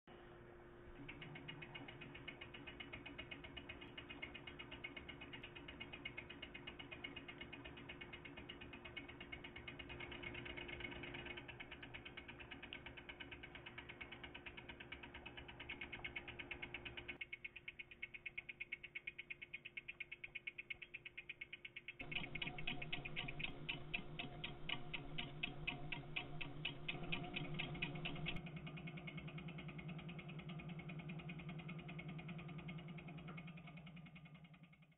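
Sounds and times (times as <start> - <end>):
electric motor buzzing and clicking: 21.5 - 28.4.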